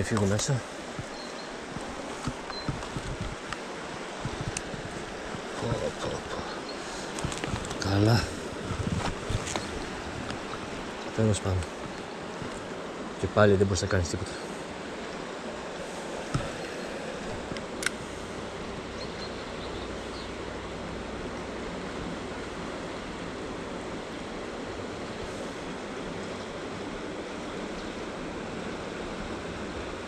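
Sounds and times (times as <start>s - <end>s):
river water flowing: 0.0s - 30.0s
sharp click: 17.6s - 18.0s.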